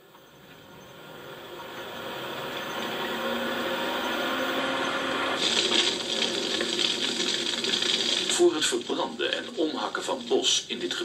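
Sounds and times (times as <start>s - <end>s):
motor running: 0.6s - 7.6s.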